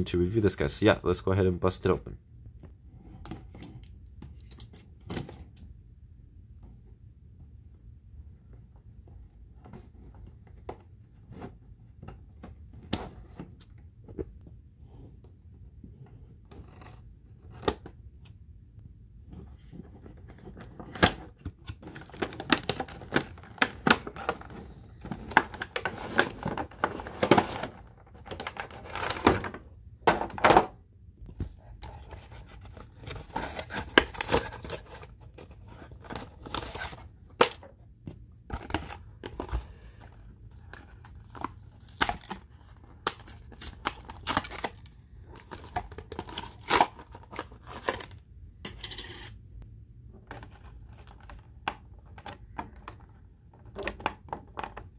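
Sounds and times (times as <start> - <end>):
plastic and cardboard crinkling: 19.5 - 30.7, 31.3 - 37.8, 38.4 - 48.2.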